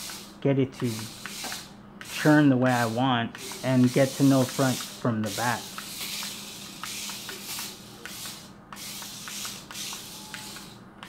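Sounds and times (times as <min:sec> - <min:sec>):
toy car motors whirring: 0:00.0 - 0:10.8.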